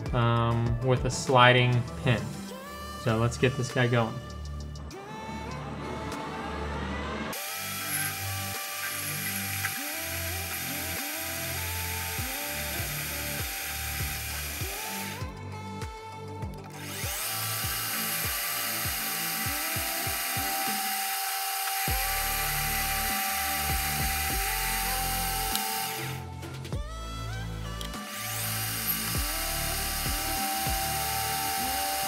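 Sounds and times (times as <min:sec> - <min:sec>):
background music with steady beat: 0:00.0 - 0:32.0
metal lathe cutting rod: 0:07.3 - 0:15.2, 0:16.8 - 0:26.2, 0:27.8 - 0:32.0.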